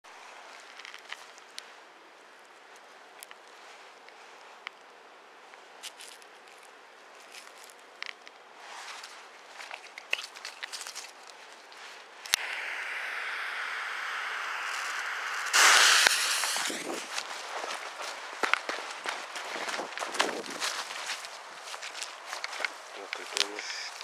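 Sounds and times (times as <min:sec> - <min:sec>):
footsteps in grass: 0:05.8 - 0:12.3, 0:15.8 - 0:24.0
firecracker bang: 0:12.4 - 0:17.2
fuse hissing: 0:12.4 - 0:17.8
fuse catching snap: 0:14.0 - 0:16.9.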